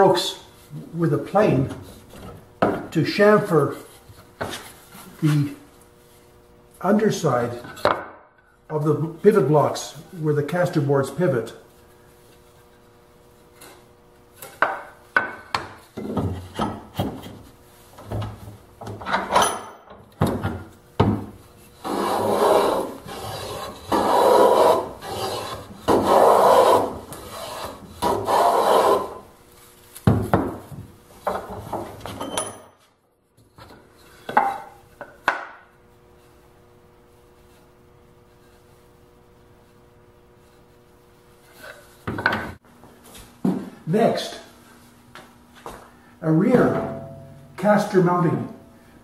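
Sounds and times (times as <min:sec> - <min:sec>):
hand plane shaving wood: 0:21.8 - 0:29.2.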